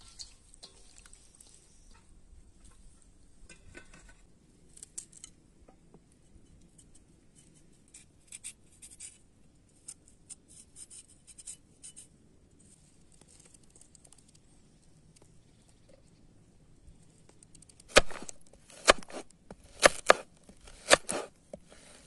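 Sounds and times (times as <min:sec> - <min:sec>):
knife scraping carrots: 0:17.9 - 0:22.0.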